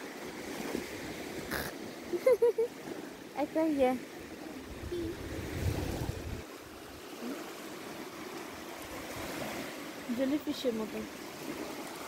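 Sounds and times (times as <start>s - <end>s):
sea waves washing onto shore: 0.0s - 12.0s
wind rumble on microphone: 4.6s - 6.9s.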